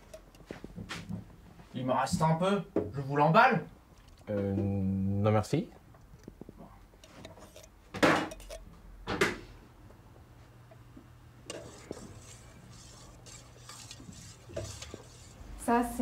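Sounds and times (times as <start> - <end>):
soft scraping and clinking: 0.0 - 1.2, 6.1 - 8.7, 11.4 - 15.5.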